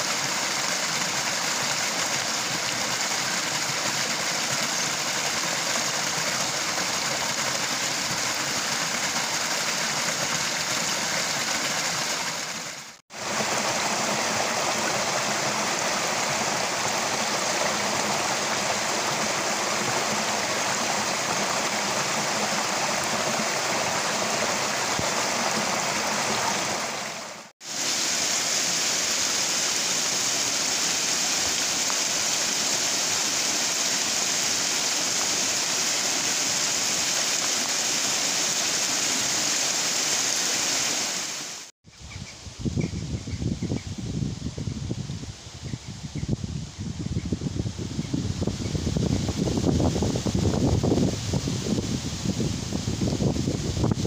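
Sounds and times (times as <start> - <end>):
stream splashing over rocks: 0.0 - 41.7.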